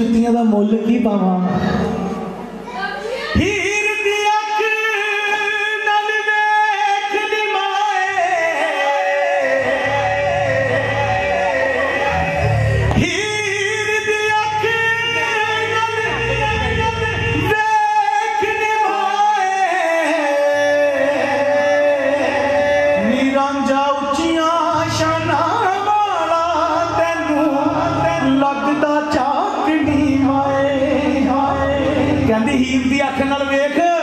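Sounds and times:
instrumental accompaniment: 8.2 - 34.0.

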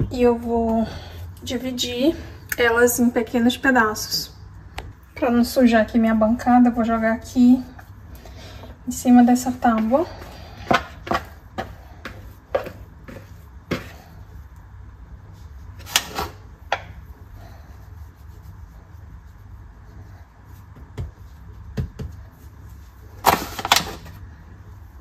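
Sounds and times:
steady low hum: 0.0 - 25.0
dough knocking on wooden board: 20.8 - 22.2.

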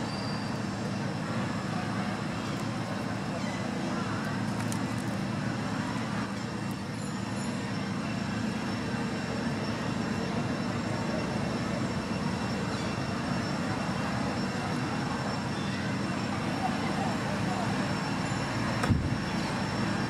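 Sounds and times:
distant road traffic rumble: 0.0 - 20.0
faint high steady tones: 6.4 - 20.0.

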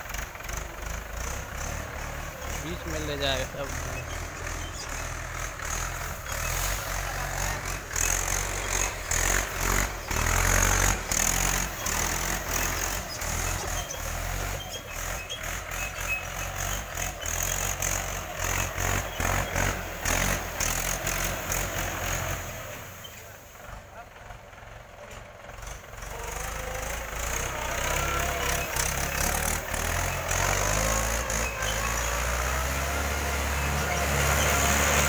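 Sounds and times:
tractor diesel engine running: 0.0 - 35.0.

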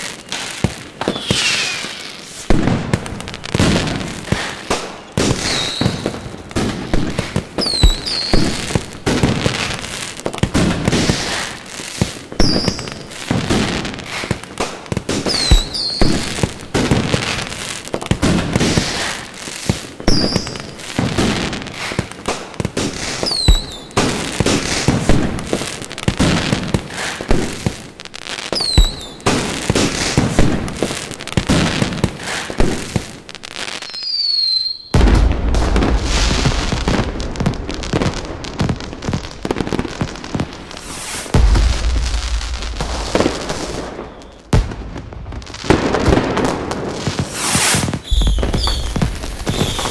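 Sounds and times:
fireworks booming: 0.0 - 27.9, 28.5 - 33.4, 34.8 - 49.9
fireworks crackling: 0.0 - 49.9
fireworks whistling: 0.0 - 49.9.

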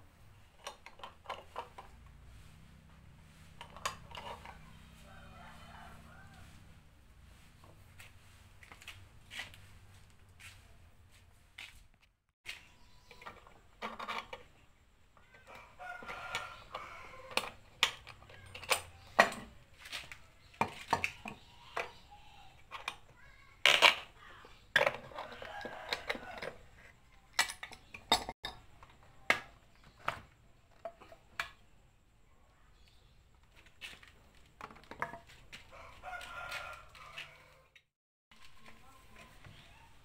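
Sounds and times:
rooster crowing: 4.6 - 6.8, 15.4 - 17.4, 25.2 - 26.6, 35.7 - 37.8.

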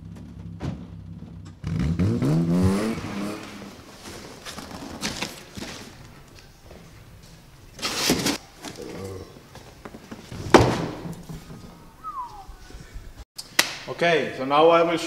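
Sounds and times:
cardboard rustling: 3.7 - 6.8.

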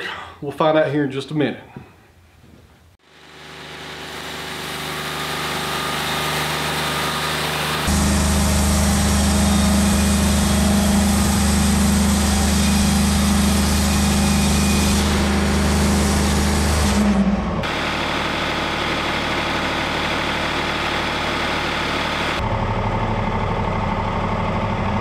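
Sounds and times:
band sawmill sawing log: 3.1 - 22.5.

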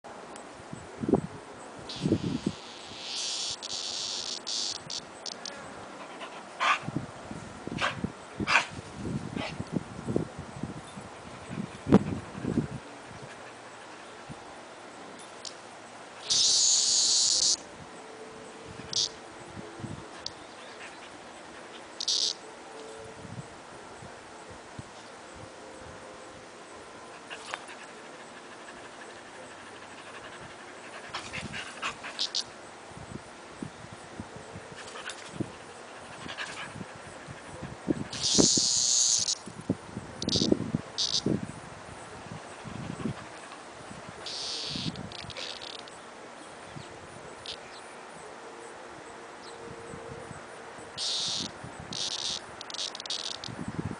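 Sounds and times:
cicada buzzing: 1.8 - 6.8, 15.4 - 19.6, 20.2 - 22.7, 27.2 - 33.7, 35.0 - 47.9, 50.2 - 53.9.

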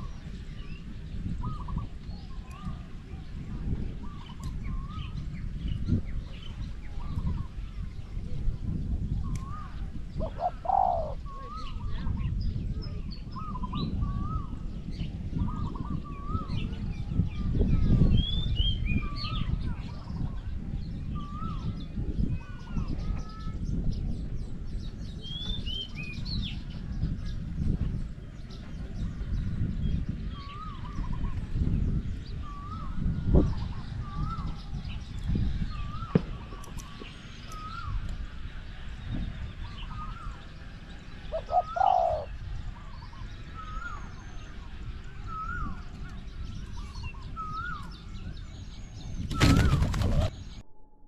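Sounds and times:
small birds chirping: 0.0 - 50.6
doves cooing: 9.4 - 11.8, 41.3 - 44.0.

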